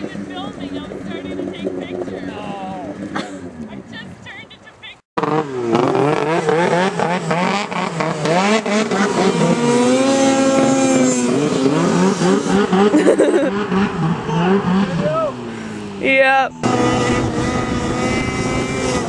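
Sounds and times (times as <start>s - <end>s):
snowmobile engine revving: 0.0s - 19.0s.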